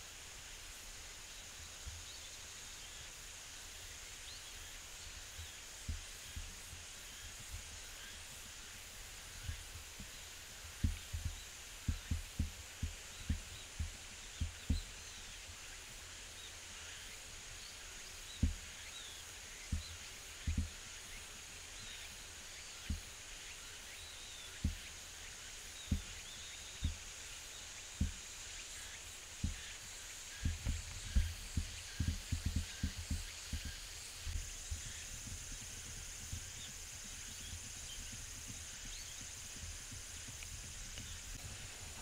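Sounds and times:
faint chirps: 0.0s - 42.0s
insect drone: 0.0s - 42.0s
dull low thumps: 9.3s - 15.2s, 18.3s - 18.8s, 19.7s - 20.8s, 25.8s - 27.0s, 28.0s - 28.2s, 30.3s - 42.0s.

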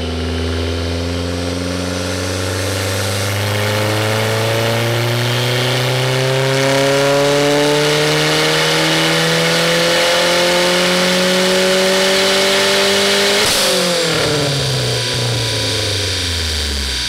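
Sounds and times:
car engine revving at full throttle: 0.0s - 17.0s.

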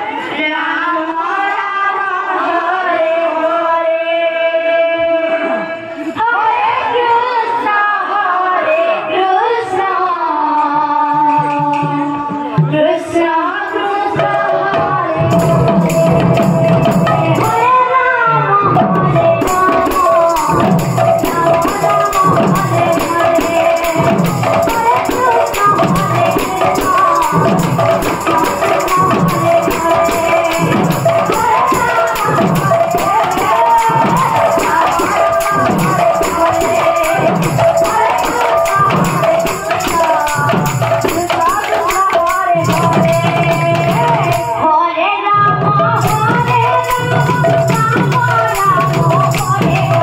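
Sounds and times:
woman singing through microphone: 0.0s - 50.0s
percussion steady beat: 10.6s - 18.0s, 18.6s - 50.0s.

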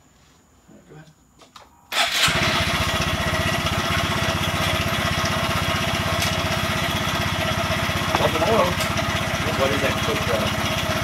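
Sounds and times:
motorcycle engine idling: 2.3s - 11.0s.

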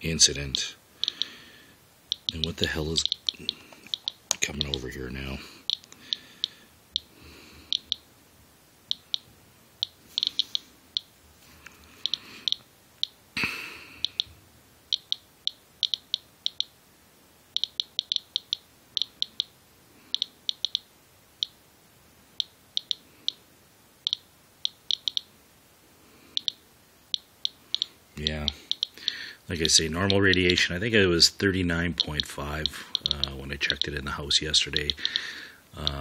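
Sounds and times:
geiger counter chirping: 0.5s - 1.4s, 2.1s - 8.0s, 8.9s - 11.1s, 12.0s - 13.2s, 14.0s - 14.3s, 14.9s - 16.7s, 17.5s - 21.6s, 22.4s - 23.4s, 24.0s - 25.3s, 26.3s - 30.8s, 31.8s - 34.0s, 34.7s - 36.0s.

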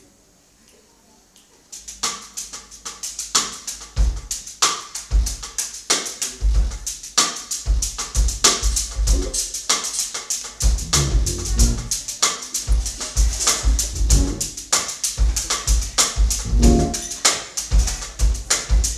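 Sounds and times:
drum kit groove: 1.7s - 18.9s
deep electric bass: 10.8s - 11.9s, 13.9s - 14.6s, 16.5s - 17.0s.

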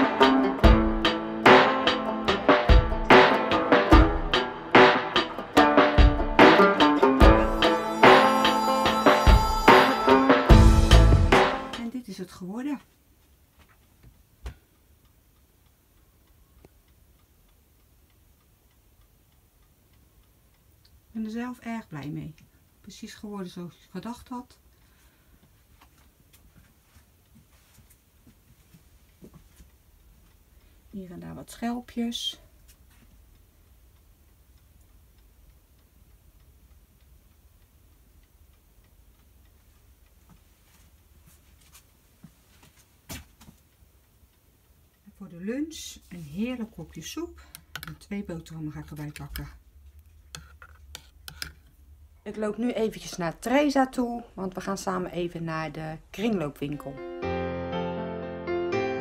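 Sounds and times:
faint regular ticking: 12.8s - 27.4s, 28.0s - 43.0s, 43.6s - 56.5s.

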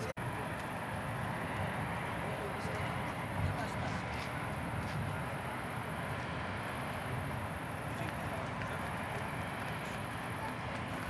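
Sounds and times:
distant city traffic hum: 0.0s - 11.0s.

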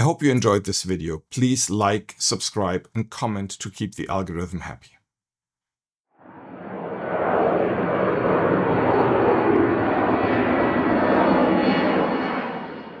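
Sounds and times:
aircraft engine rushing: 6.2s - 13.0s.

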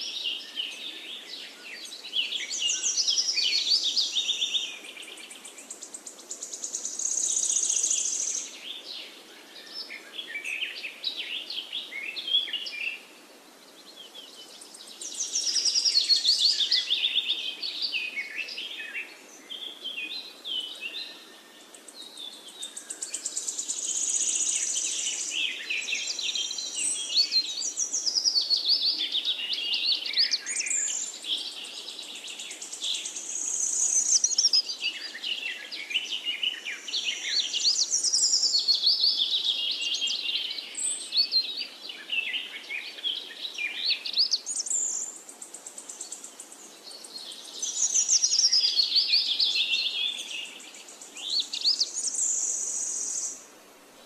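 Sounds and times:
birds chirping: 13.7s - 53.4s.

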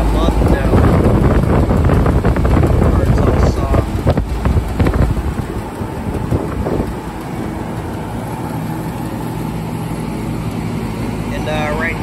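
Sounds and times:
air rushing over microphone: 0.0s - 9.0s
heat pump humming: 0.0s - 12.0s.

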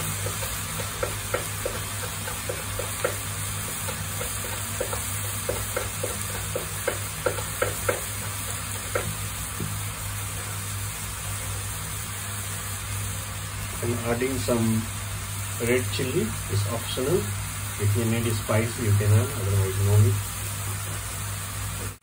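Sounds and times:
wooden spatula knocking on pan: 0.0s - 9.8s
vegetables sizzling in a frying pan: 0.0s - 22.0s.

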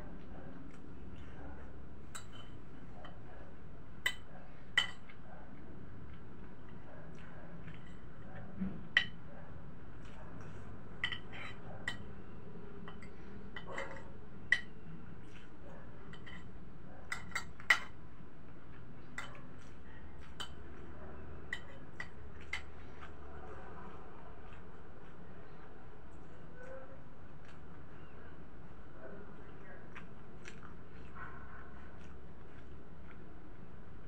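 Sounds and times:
cutlery clinking on plate: 2.1s - 3.2s, 4.1s - 5.1s, 11.0s - 12.1s, 17.1s - 18.0s.

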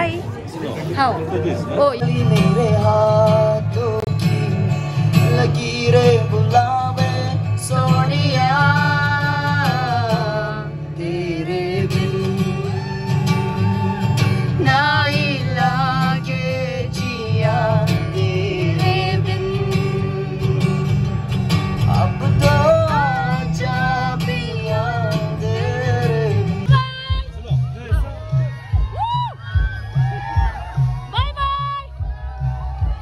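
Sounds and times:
acoustic guitar: 0.0s - 33.0s
man singing: 1.8s - 13.1s, 14.5s - 21.0s, 21.8s - 26.8s.

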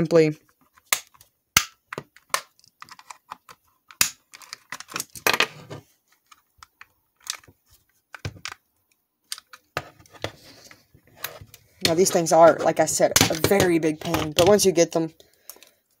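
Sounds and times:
plastic clips clicking and snapping: 0.8s - 5.3s
plastic shell clattering: 0.8s - 5.6s.

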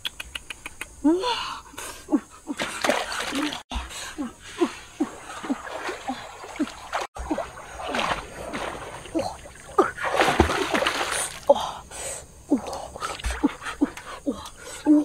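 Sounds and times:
water splashing: 2.5s - 11.8s.

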